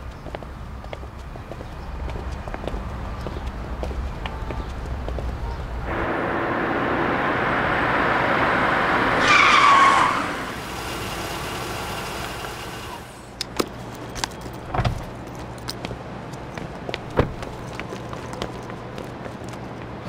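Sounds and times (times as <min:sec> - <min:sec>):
tyres squealing: 0:05.5 - 0:15.3
car driving up: 0:05.8 - 0:13.5.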